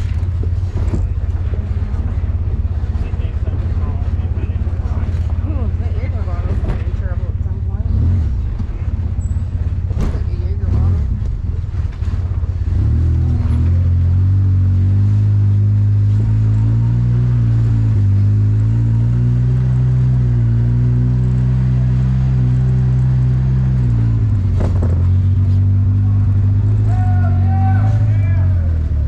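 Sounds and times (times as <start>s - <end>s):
engine revving under throttle: 7.7s - 8.8s, 12.6s - 29.0s.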